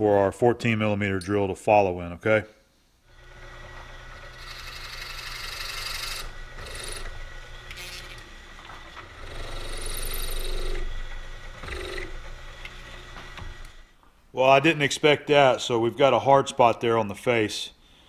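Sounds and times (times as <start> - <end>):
milling machine drilling cast iron: 3.1 - 13.9.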